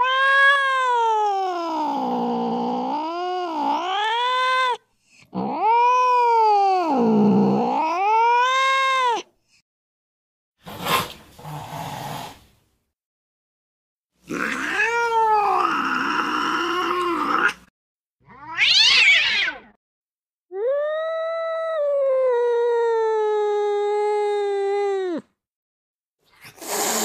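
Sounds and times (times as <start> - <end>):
cat screeching: 0.0 - 4.8, 5.4 - 9.3, 14.3 - 17.6, 18.2 - 19.8
cat yowling: 0.0 - 9.3, 14.3 - 17.6, 18.2 - 19.8, 20.5 - 25.3
angry cat hissing: 26.3 - 27.0.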